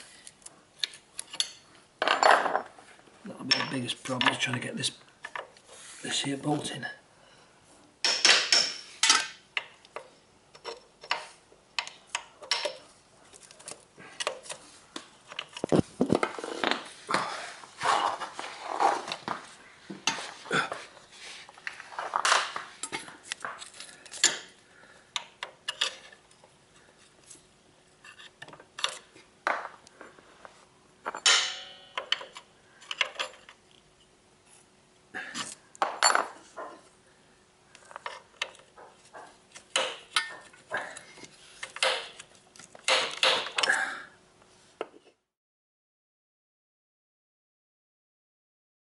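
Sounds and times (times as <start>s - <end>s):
metal parts clinking and scraping: 0.8s - 2.7s, 8.0s - 14.6s, 25.2s - 27.4s, 31.0s - 33.8s, 37.8s - 43.7s.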